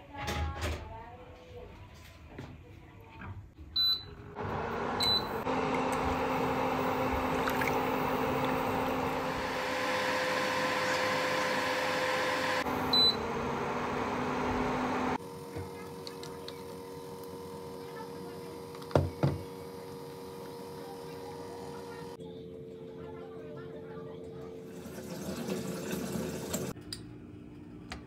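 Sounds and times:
induction cooker beeping: 3.8 - 22.2.

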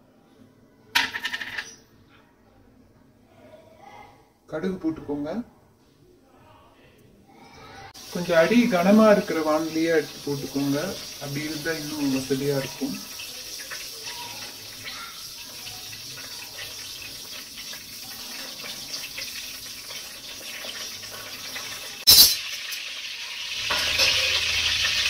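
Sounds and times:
oil sizzling: 7.9 - 25.0.

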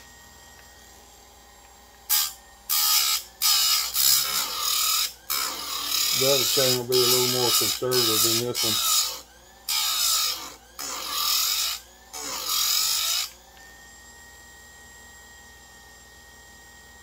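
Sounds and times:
motor high whine: 0.0 - 17.0
grinding wheel on saw chain: 2.1 - 13.4.

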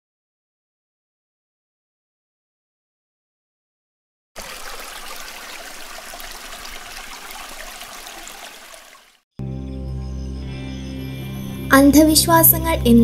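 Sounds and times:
stream trickling over stones: 4.4 - 9.2.

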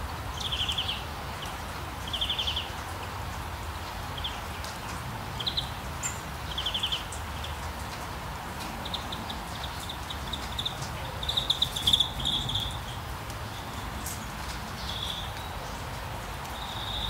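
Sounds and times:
background hiss and rumble: 0.0 - 17.0
songbird trilling and chirping: 8.8 - 13.8, 14.8 - 15.5.

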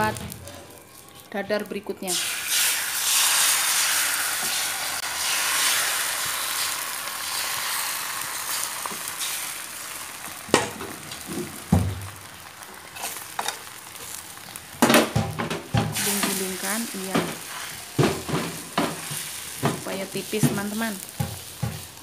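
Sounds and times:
egg sizzling in hot oil: 2.0 - 22.0
metal spatula scraping pan: 13.0 - 13.6.

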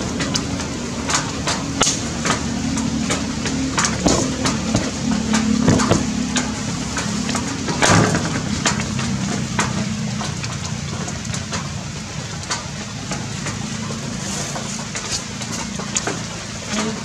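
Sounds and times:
low steady hum: 0.0 - 16.7
rain falling on leaves: 0.0 - 17.0
drops tapping: 1.5 - 9.8.

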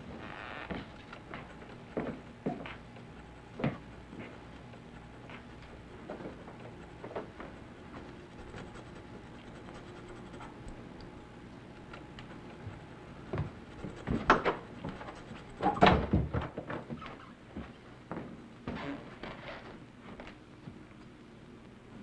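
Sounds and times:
faint scratching: 0.2 - 15.9.

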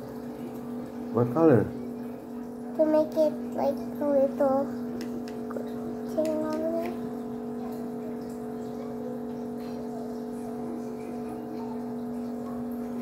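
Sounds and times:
motor humming: 0.0 - 13.0.

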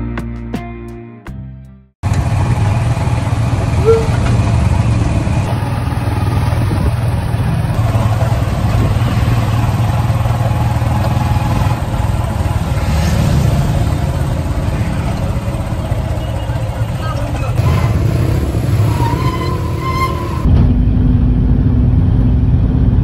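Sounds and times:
engine rumble and road noise: 2.0 - 23.0
short squeak: 3.8 - 4.4, 18.8 - 20.5.

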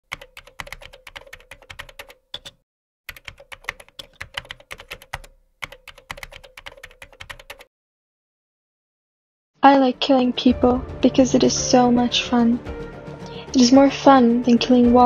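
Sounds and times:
rapid keyboard key clicks: 0.1 - 7.7.

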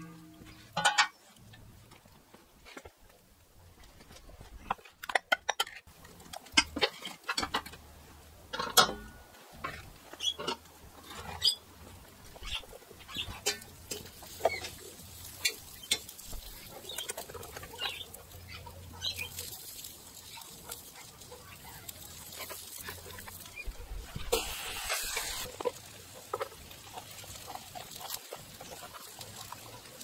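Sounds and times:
sausages handled in frying pan: 3.8 - 30.0
faint hiss: 23.0 - 26.0.

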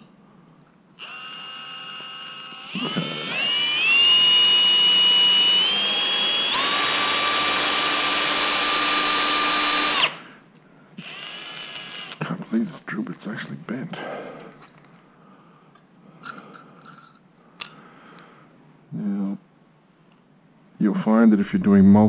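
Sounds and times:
cordless drill motor whine: 1.0 - 10.2, 11.0 - 12.2.

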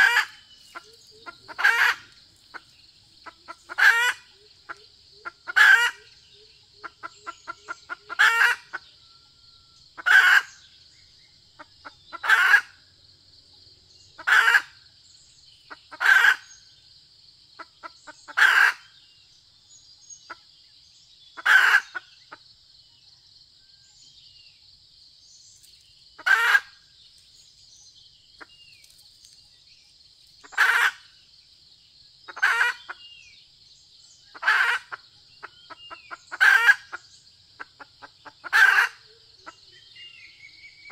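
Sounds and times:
soft clucks: 0.0 - 6.0
hen calling: 0.0 - 9.0, 10.0 - 10.6, 11.6 - 12.7, 14.2 - 14.7, 21.4 - 22.1, 26.2 - 26.7, 30.4 - 31.1, 32.3 - 33.2, 34.3 - 40.2.

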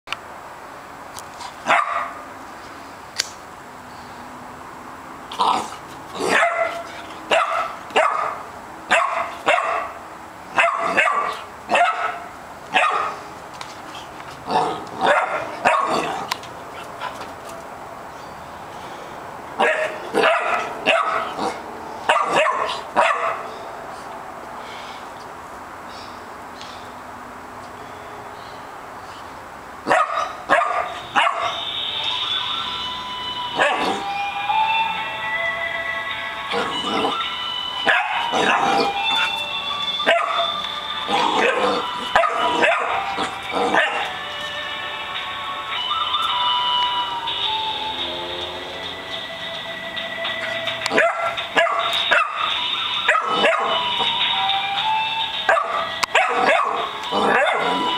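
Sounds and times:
puppy barking: 1.6 - 2.2, 5.5 - 13.2, 14.5 - 16.2, 19.6 - 23.5, 29.8 - 31.6, 33.6 - 34.0, 37.8 - 39.3, 40.0 - 44.1, 50.9 - 53.8, 55.5 - 57.9
puppy yapping: 10.6 - 12.2, 29.9 - 31.6, 40.0 - 44.1, 50.9 - 52.5, 53.1 - 53.8, 55.5 - 57.9
background music: 32.0 - 57.9.

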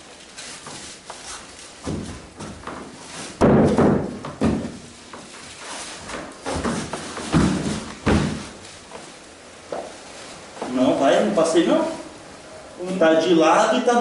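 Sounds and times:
bodies thudding on foam mats: 0.6 - 9.1.

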